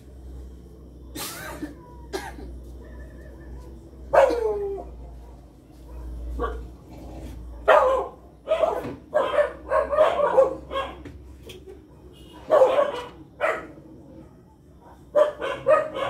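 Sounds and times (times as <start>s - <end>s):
dog barking: 4.1s - 6.8s, 7.5s - 11.1s, 12.0s - 16.0s.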